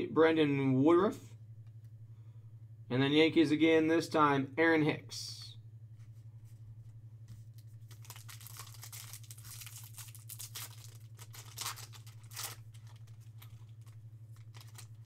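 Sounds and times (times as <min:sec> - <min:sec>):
foil wrapper crinkling: 0:07.5 - 0:15.0
foil wrapper tearing: 0:07.5 - 0:15.0.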